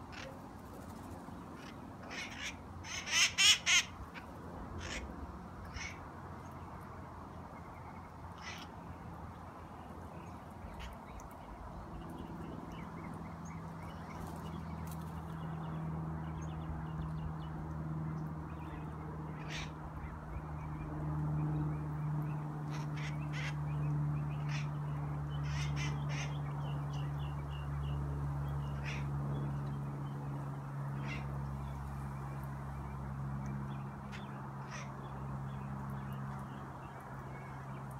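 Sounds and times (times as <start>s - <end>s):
parakeet sharp calls: 1.6s - 5.1s, 5.7s - 6.0s, 8.4s - 8.7s, 19.4s - 19.7s, 22.7s - 24.8s, 25.4s - 26.9s, 28.7s - 29.1s, 31.0s - 31.3s, 34.1s - 35.6s.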